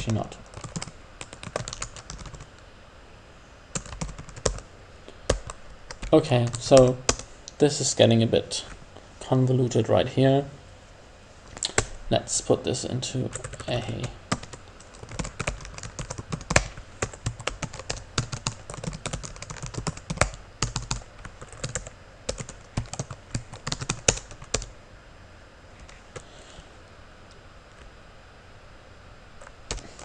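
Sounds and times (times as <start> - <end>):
typing on computer keyboard: 0.5 - 2.5, 3.8 - 4.6, 14.3 - 24.7.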